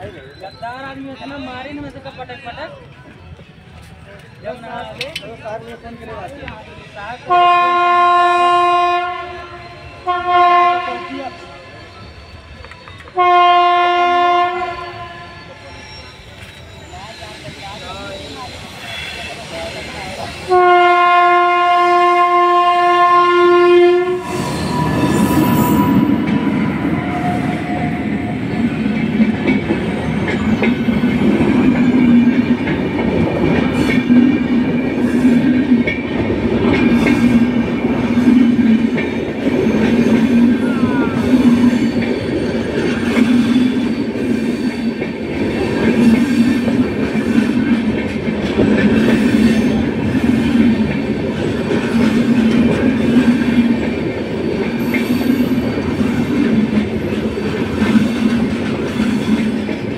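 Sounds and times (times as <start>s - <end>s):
train wheels clattering on rails: 24.2s - 59.9s.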